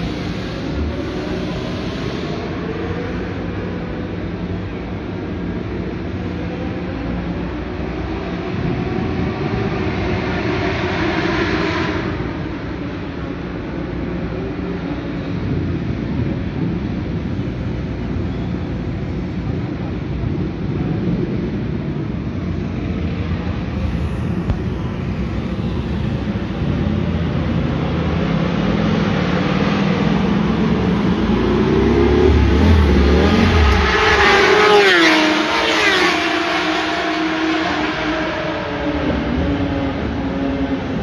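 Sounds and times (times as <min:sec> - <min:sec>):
motorcycle passing at speed: 0:22.8 - 0:41.0.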